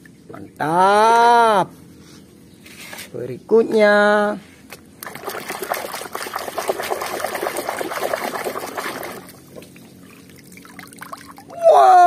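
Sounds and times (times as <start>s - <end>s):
water sloshing and splashing: 4.7s - 11.6s.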